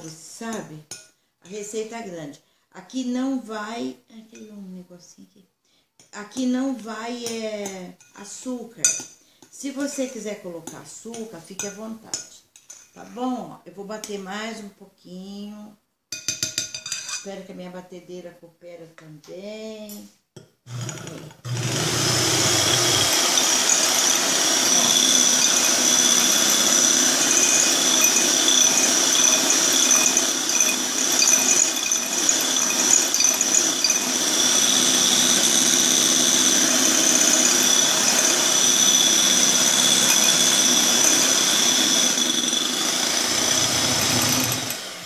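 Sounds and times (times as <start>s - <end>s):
electric hand mixer whining: 20.7s - 45.0s.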